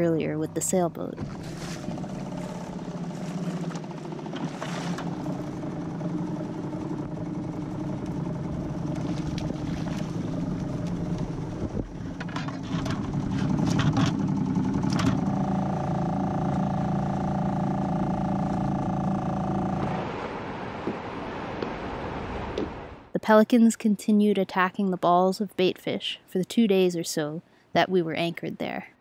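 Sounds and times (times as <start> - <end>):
small boat engine running: 0.0 - 22.2.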